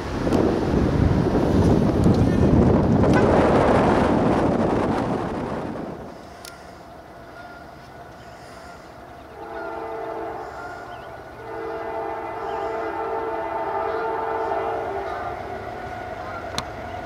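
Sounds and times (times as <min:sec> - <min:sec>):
train rumbling: 0:00.0 - 0:17.0
locomotive air horn: 0:03.1 - 0:03.6, 0:07.3 - 0:16.5.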